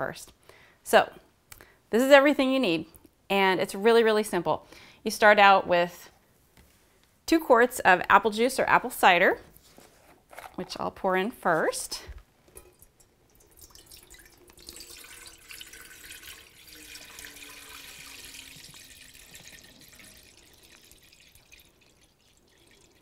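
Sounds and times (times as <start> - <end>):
juice pouring into metal pot: 12.5 - 23.0.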